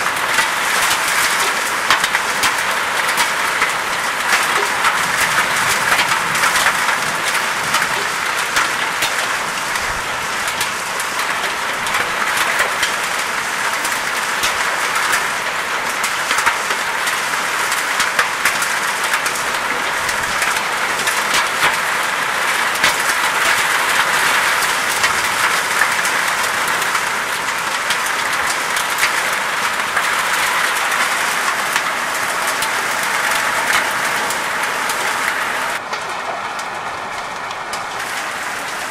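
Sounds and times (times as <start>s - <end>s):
hailstones ticking: 0.0s - 38.9s
heavy rain hissing: 18.6s - 38.9s.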